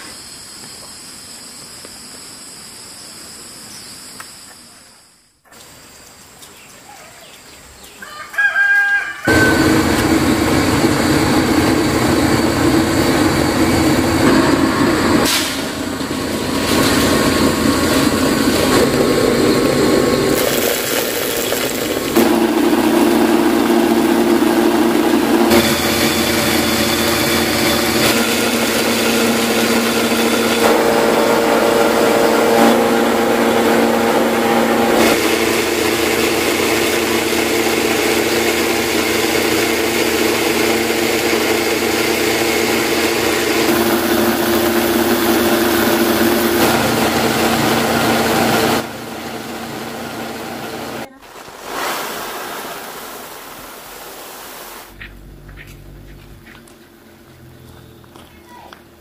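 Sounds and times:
rooster crowing: 0:07.9 - 0:10.0
machine motor running: 0:09.3 - 0:51.1.

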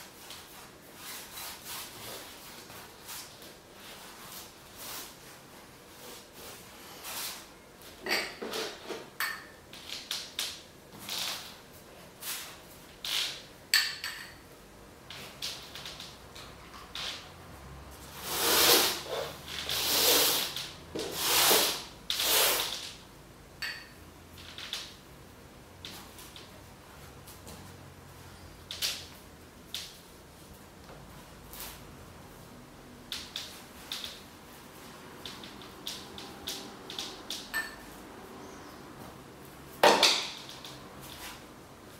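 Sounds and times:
loud scraping strokes: 0:18.1 - 0:22.8.

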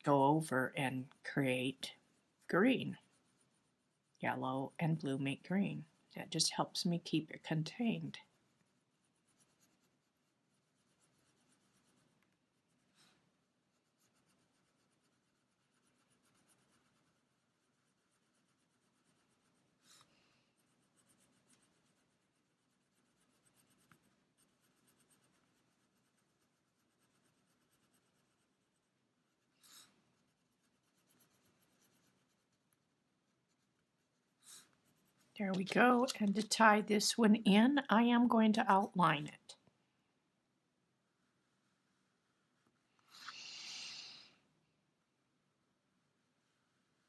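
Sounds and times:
pencil scratching on plastic: 0:00.0 - 0:37.8.

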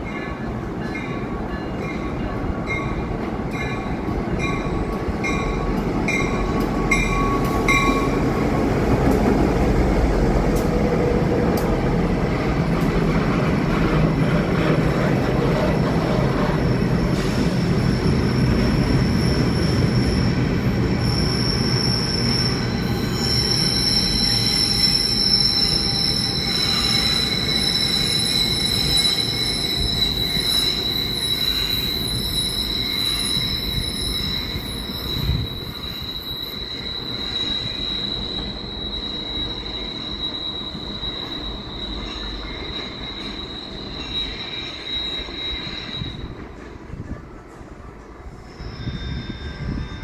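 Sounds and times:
train rumble: 0:00.0 - 0:50.0
train wheel squeal: 0:00.0 - 0:50.0.

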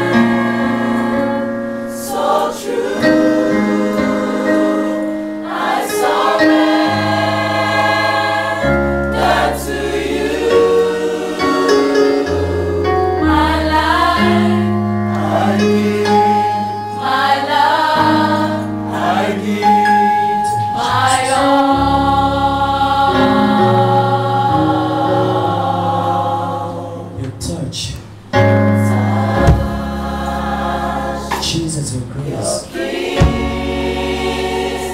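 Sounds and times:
choir singing gospel in harmony: 0:00.0 - 0:27.5, 0:28.3 - 0:34.9
low bass notes: 0:27.1 - 0:34.9.

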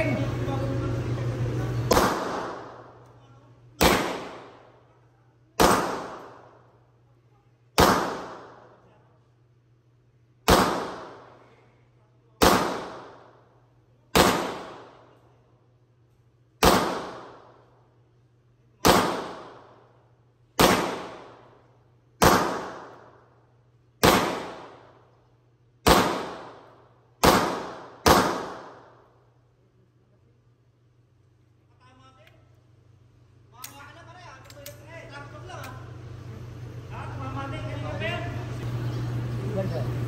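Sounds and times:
pistol shots echoing: 0:01.9 - 0:03.0, 0:03.8 - 0:04.8, 0:05.6 - 0:06.6, 0:07.8 - 0:08.8, 0:10.4 - 0:11.4, 0:12.4 - 0:13.4, 0:14.1 - 0:15.1, 0:16.6 - 0:17.7, 0:18.8 - 0:19.9, 0:20.6 - 0:21.6, 0:22.2 - 0:23.2, 0:24.0 - 0:25.0, 0:25.8 - 0:29.1.

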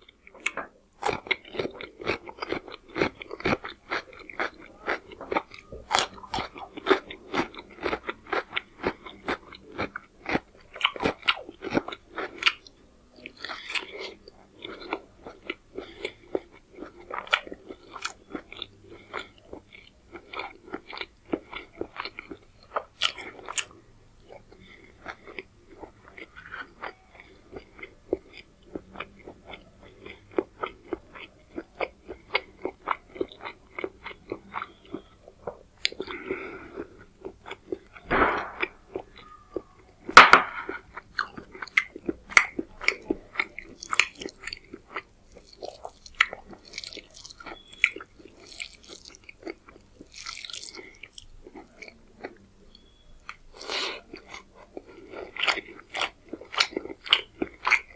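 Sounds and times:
crunching and chewing cucumber: 0:00.0 - 0:57.9
wet mouth sounds: 0:45.3 - 0:57.9.

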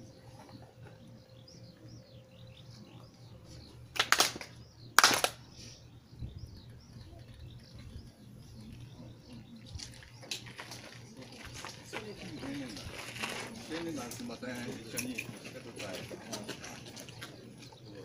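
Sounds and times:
birds chirping: 0:00.0 - 0:18.0
group clapping: 0:03.9 - 0:05.4.

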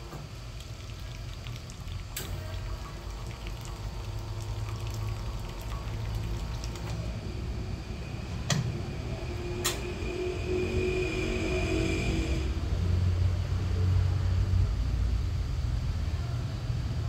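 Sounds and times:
espresso machine humming: 0:00.0 - 0:14.2
water trickling onto metal tray: 0:00.4 - 0:07.1.

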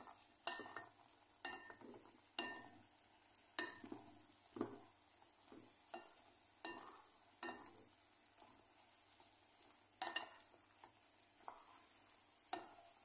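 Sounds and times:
wooden spatula scraping a pan: 0:03.6 - 0:13.0.

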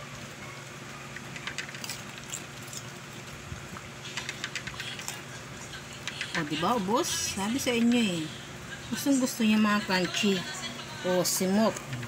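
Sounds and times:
dog crunching and chewing: 0:01.2 - 0:05.4.

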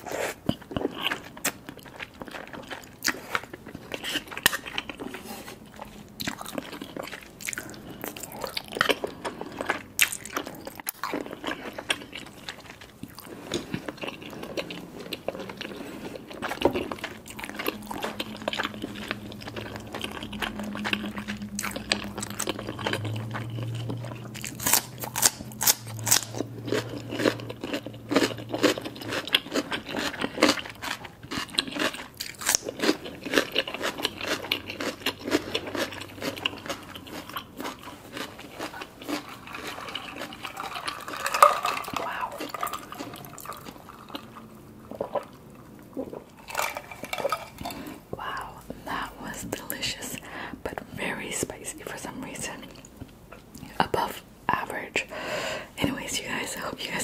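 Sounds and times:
wet chewing: 0:00.0 - 0:50.9
low steady hum: 0:00.0 - 0:57.0
crunching bites of cucumber: 0:24.4 - 0:41.2.

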